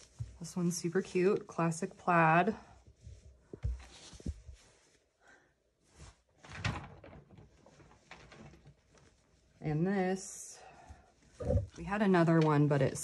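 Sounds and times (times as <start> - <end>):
fabric rustle: 0.0 - 6.4, 7.2 - 13.0
soft low thumps: 11.4 - 11.8.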